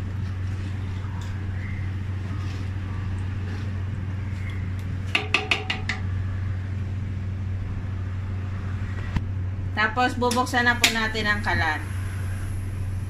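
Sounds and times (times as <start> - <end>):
wooden spatula stirring liquid: 0.0 - 5.8
steady low hum: 0.0 - 13.0
spatula knocking on steel pan: 5.1 - 6.0.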